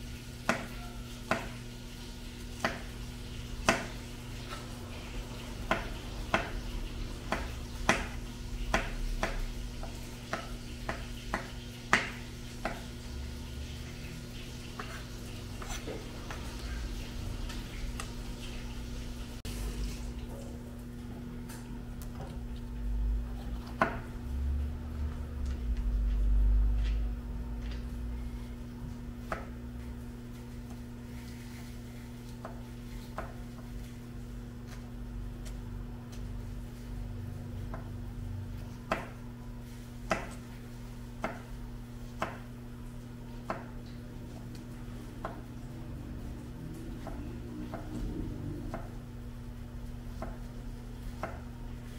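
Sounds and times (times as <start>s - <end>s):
knife tapping cutting board: 0.4s - 1.6s, 2.6s - 3.0s, 3.6s - 4.6s, 5.7s - 6.6s, 7.3s - 12.9s, 23.6s - 24.1s, 29.2s - 29.6s, 32.3s - 33.7s, 38.9s - 39.2s, 40.1s - 40.4s, 42.2s - 42.5s, 43.4s - 43.8s, 50.1s - 50.5s, 51.1s - 51.5s
steady low hum: 1.5s - 51.9s.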